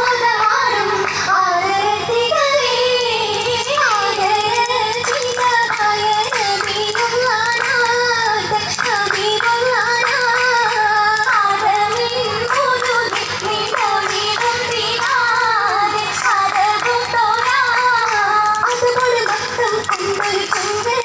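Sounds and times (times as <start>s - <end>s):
hand claps keeping time: 1.0s - 21.0s.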